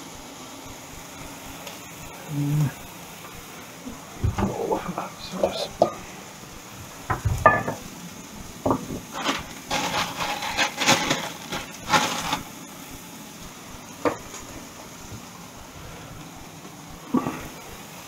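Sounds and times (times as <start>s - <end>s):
chicken sizzling in a pan: 0.0s - 18.0s
utensil scraping a frying pan: 8.8s - 12.5s.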